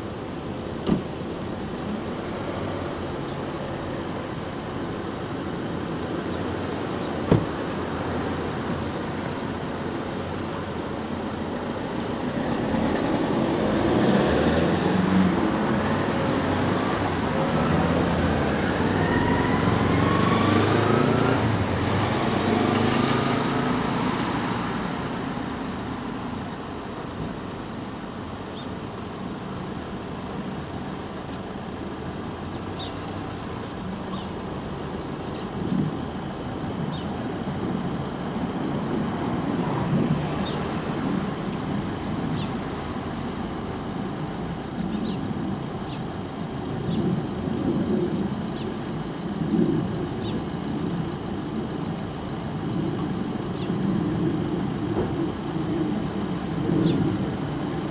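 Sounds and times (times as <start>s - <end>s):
traffic rumble: 0.0s - 57.9s
sparrows chirping: 1.6s - 12.6s, 14.6s - 18.2s, 25.6s - 27.2s, 28.0s - 29.7s, 32.3s - 37.9s, 40.4s - 40.7s, 42.1s - 47.4s, 48.4s - 48.9s, 50.1s - 51.7s, 53.4s - 53.8s, 56.8s - 57.2s
vehicle accelerating past: 12.5s - 25.2s.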